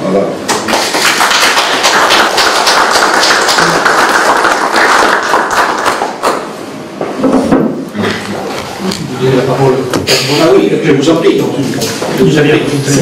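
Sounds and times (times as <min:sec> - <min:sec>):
group clapping: 0:00.4 - 0:06.8.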